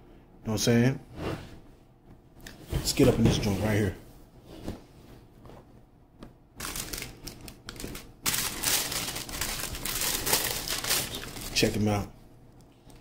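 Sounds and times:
tissue paper rustling: 0:06.6 - 0:07.2, 0:07.8 - 0:11.7.

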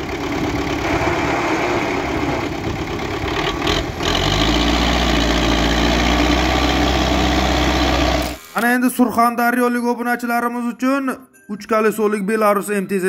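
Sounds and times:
tractor diesel engine idling: 0:00.0 - 0:08.4.

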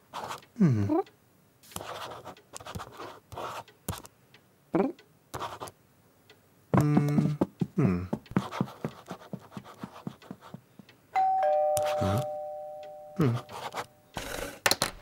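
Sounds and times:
person humming low: 0:00.6 - 0:01.1, 0:04.8 - 0:05.0, 0:06.8 - 0:08.3, 0:11.8 - 0:13.9
pen scribbling on paper: 0:01.7 - 0:04.0, 0:05.4 - 0:05.7, 0:08.3 - 0:10.6
two-tone doorbell: 0:11.2 - 0:14.0.

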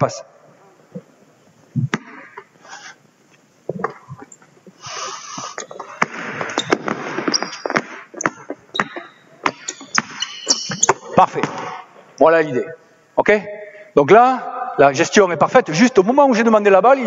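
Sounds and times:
basketball bouncing on gym floor: 0:06.0 - 0:11.8
sneaker squeaks: 0:06.4 - 0:11.8.

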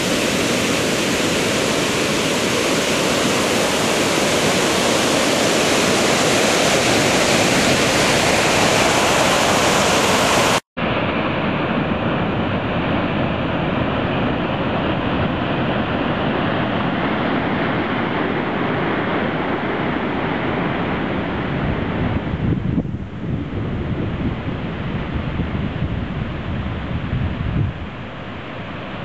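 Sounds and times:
waves breaking on sand: 0:00.0 - 0:10.6.

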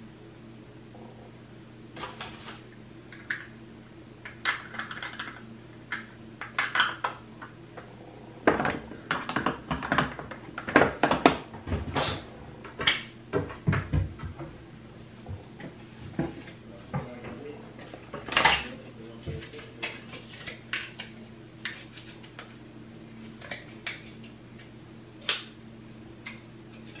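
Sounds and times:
low hum: 0:00.0 - 0:19.2.

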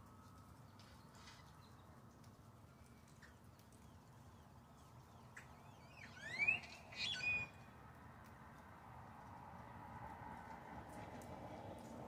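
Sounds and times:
grackle rising whistle: 0:05.2 - 0:07.8
grackle harsh squawk: 0:05.8 - 0:07.6.

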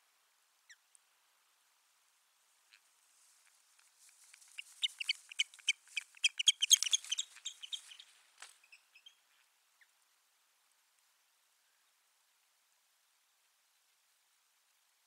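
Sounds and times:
bird giving sharp chirping calls: 0:04.6 - 0:08.1.

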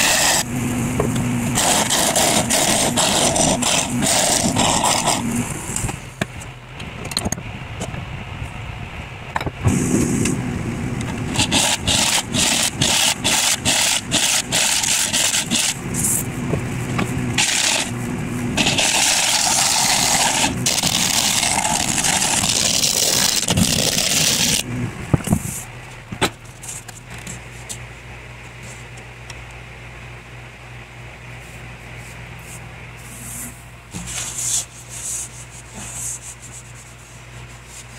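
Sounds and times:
scraper cutting wood on lathe: 0:00.0 - 0:00.5, 0:01.6 - 0:05.9, 0:11.3 - 0:16.2, 0:17.4 - 0:18.0, 0:18.6 - 0:24.6
low steady hum: 0:00.0 - 0:37.9.

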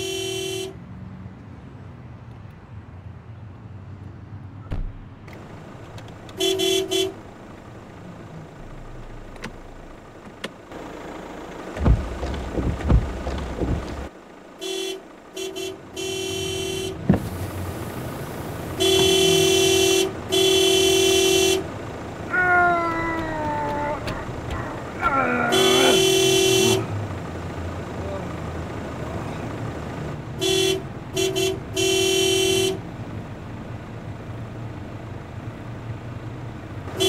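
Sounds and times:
car horn blasts: 0:00.0 - 0:00.8, 0:06.3 - 0:07.2, 0:11.8 - 0:17.1, 0:18.7 - 0:21.7, 0:24.0 - 0:27.0, 0:30.4 - 0:32.8
dull thumps: 0:11.8 - 0:14.1.

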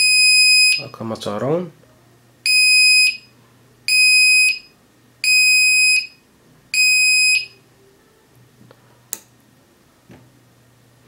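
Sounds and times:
high-pitched alarm buzzer beeps: 0:00.0 - 0:01.0, 0:02.5 - 0:03.3, 0:03.9 - 0:06.2, 0:06.8 - 0:07.6.

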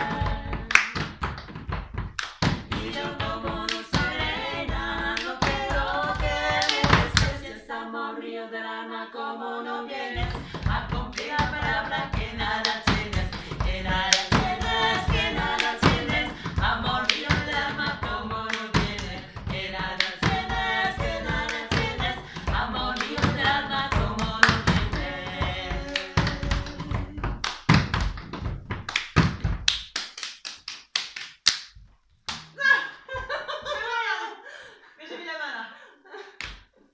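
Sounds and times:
women singing folk song: 0:00.0 - 0:01.1, 0:02.6 - 0:27.9.

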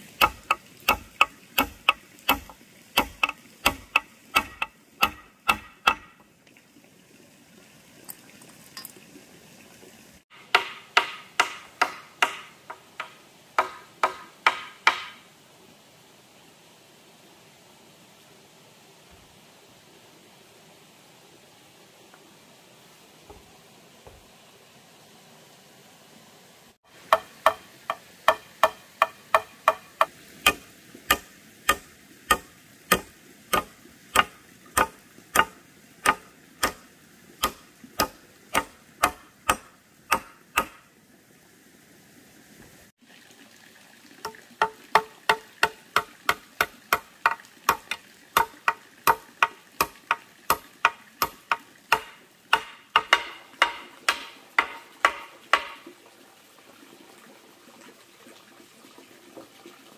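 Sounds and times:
hammer blows on wood: 0:00.2 - 0:06.2, 0:27.1 - 0:36.8, 0:37.4 - 0:40.8.

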